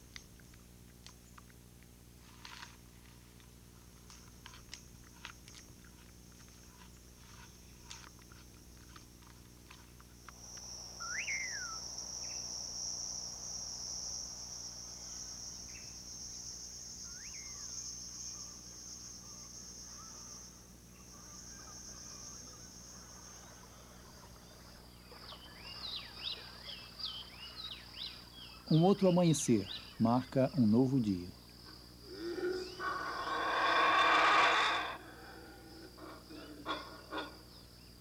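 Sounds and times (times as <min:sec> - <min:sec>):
insects trilling: 0:00.0 - 0:38.0
birds chirping: 0:04.2 - 0:38.0
short rising and falling calls: 0:10.9 - 0:11.8, 0:32.1 - 0:35.0.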